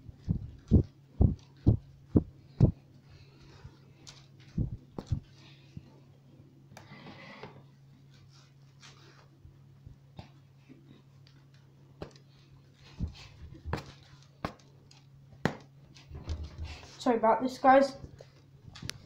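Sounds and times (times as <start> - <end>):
dull low thumps: 0.0 - 2.8, 4.6 - 5.3
steady low hum: 0.0 - 19.0.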